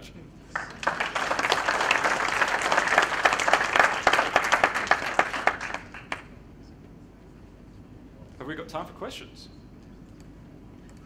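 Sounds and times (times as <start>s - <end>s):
audience applauding: 0.5s - 6.4s.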